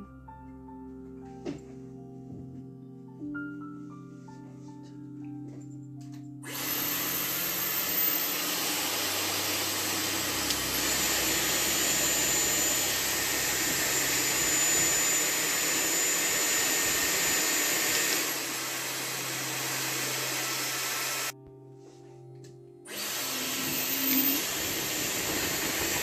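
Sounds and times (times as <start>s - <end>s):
high motor whine: 6.5s - 21.3s, 22.9s - 26.0s
hair styler air rushing: 6.5s - 21.4s, 22.9s - 26.0s.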